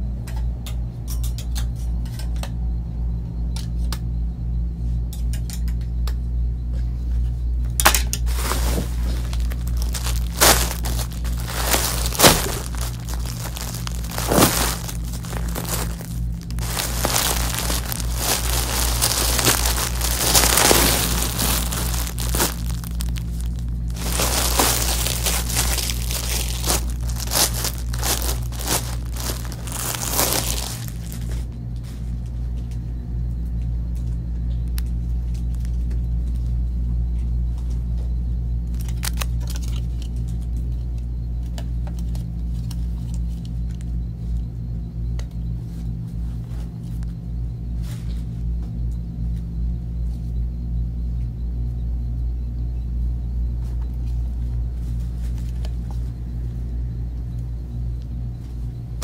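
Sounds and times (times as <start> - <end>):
plastic bags crinkling and rustling: 8.2 - 31.5, 38.8 - 39.8.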